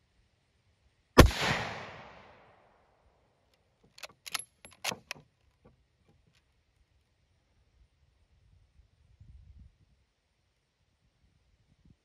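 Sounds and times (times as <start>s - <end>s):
rifle shot with echo: 1.2s - 2.6s
rifle bolt metallic clicks: 3.5s - 5.5s.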